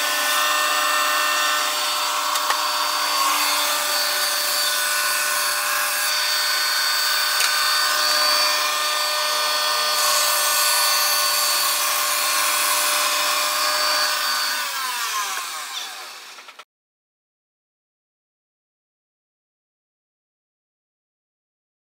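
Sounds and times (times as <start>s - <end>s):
sawmill motor whine: 0.0s - 16.6s.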